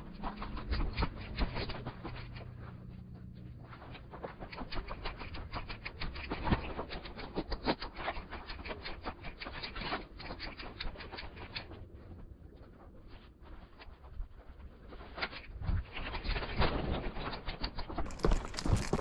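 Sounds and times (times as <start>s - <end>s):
footsteps crunching on gravel: 18.0s - 19.0s.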